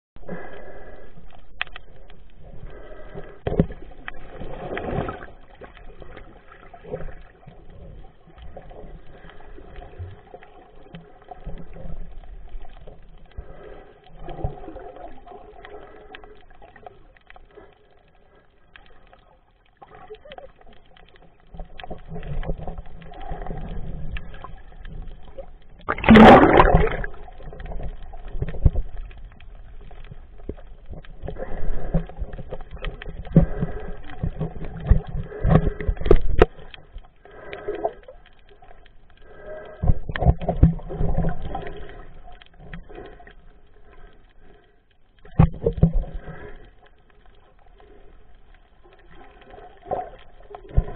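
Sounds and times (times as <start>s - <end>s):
underwater water sloshing: 0.2s - 50.9s
gush of bubbles: 25.3s - 28.8s.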